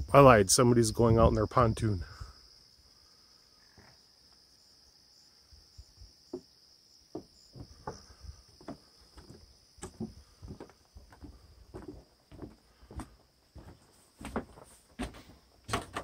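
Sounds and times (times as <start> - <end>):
crickets chirring: 0.0 - 16.0
soft footsteps: 7.1 - 16.0.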